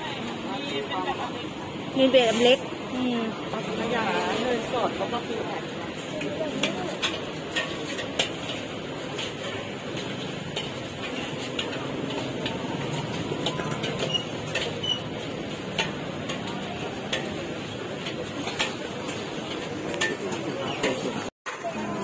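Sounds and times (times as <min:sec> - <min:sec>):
utensils clicking and clinking: 0:04.7 - 0:21.7.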